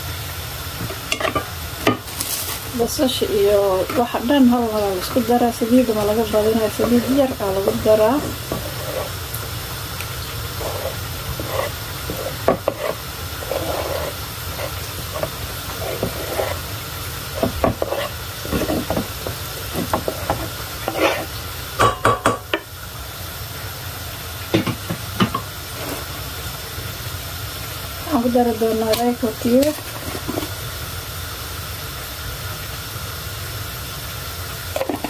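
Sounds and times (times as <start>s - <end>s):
low hum and hiss: 0.0s - 35.0s
chicken scraped off cutting board: 10.6s - 16.7s, 17.4s - 19.0s, 20.1s - 21.3s
wooden spoon knocking on pot: 21.8s - 22.6s.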